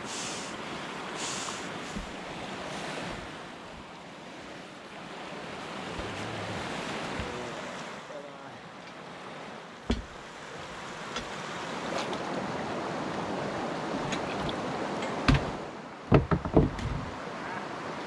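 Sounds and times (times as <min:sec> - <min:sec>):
rush of stirred water: 0:00.0 - 0:18.0
thumps on wooden deck: 0:09.9 - 0:10.2, 0:15.3 - 0:17.1.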